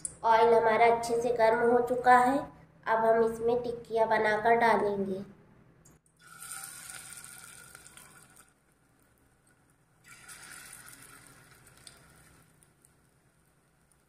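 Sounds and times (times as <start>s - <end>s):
patties sizzling in hot oil: 6.2s - 14.0s.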